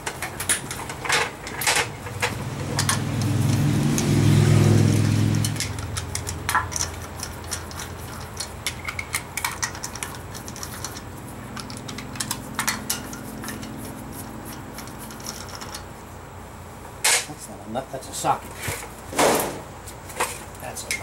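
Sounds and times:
low steady hum: 0.0 - 21.0
metallic clicks of socket on lug nuts: 5.0 - 13.8.

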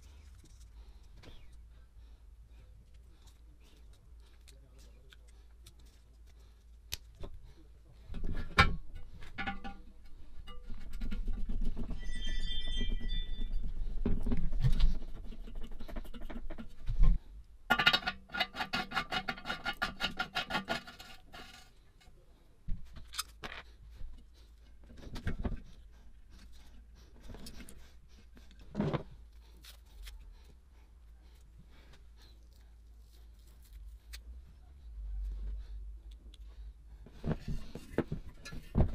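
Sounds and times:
metal knocks and taps: 8.4 - 9.9.

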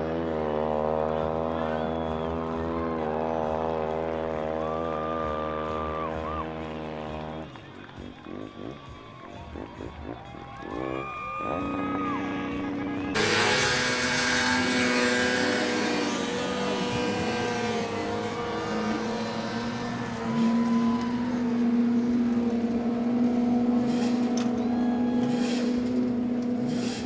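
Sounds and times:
snowmobile engines revving: 0.0 - 27.0.

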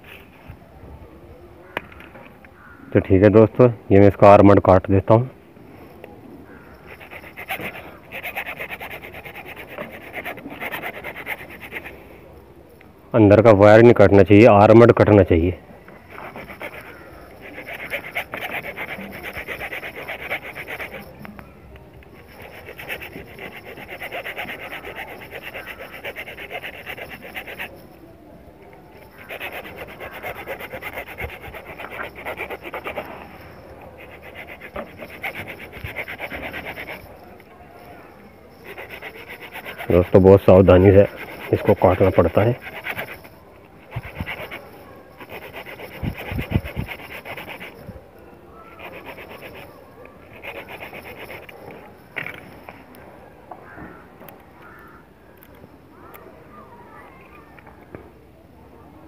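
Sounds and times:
hacksaw sawing through steel wire: 6.7 - 11.9, 16.1 - 21.2, 22.2 - 27.9, 29.0 - 47.9, 48.8 - 51.6.

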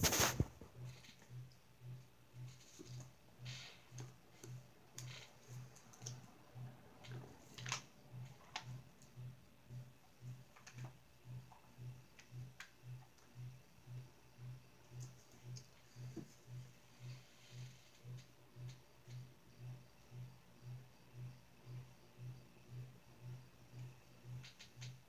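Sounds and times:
faint clicks and taps: 14.8 - 16.5.

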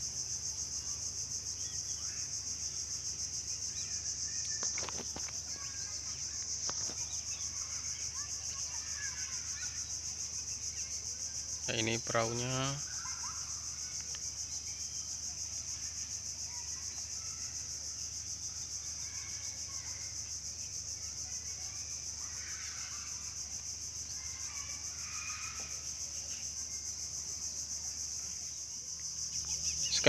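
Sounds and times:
insects chirring: 0.0 - 30.0
faint animal calls: 12.1 - 14.2, 24.2 - 26.4.

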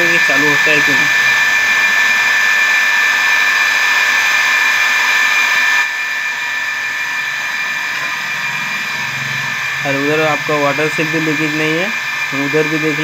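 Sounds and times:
water pump motor whining: 0.0 - 13.0.

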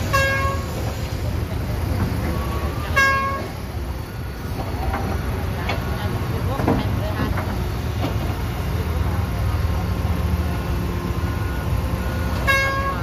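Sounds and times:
vehicle horn toot: 0.0 - 0.7, 2.8 - 3.5, 12.3 - 13.0
diesel engines running: 0.0 - 13.0.

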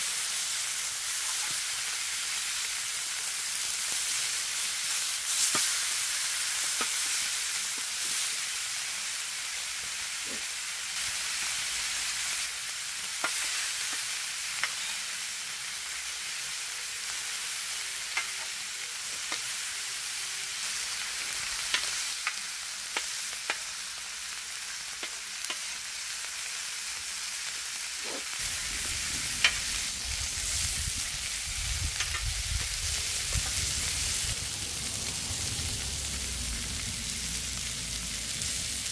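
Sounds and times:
meat sizzling on a griddle: 0.0 - 38.9
low rumble: 28.4 - 38.9.

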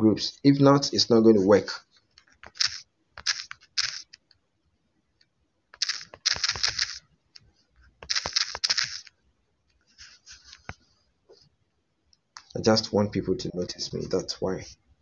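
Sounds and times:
typing on a touchscreen keyboard: 2.2 - 4.2, 5.8 - 7.0, 8.0 - 9.1.

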